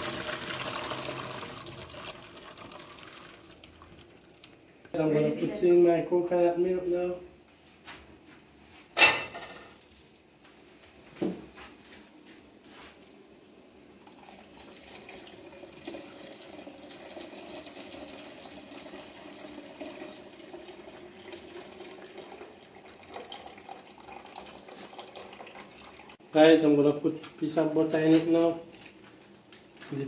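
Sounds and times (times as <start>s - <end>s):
liquid pouring into pot: 0.0s - 4.6s, 14.0s - 26.2s.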